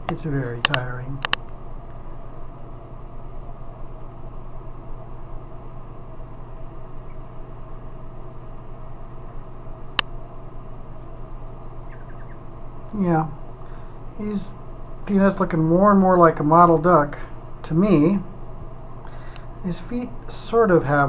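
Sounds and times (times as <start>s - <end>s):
sharp click: 0.0s - 1.5s
background hum and hiss: 0.0s - 21.0s.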